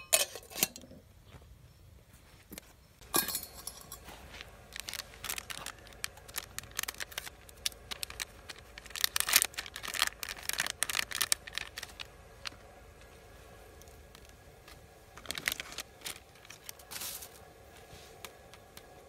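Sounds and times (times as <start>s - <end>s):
paper packet crinkling and tearing: 4.1s - 12.7s, 13.8s - 17.5s.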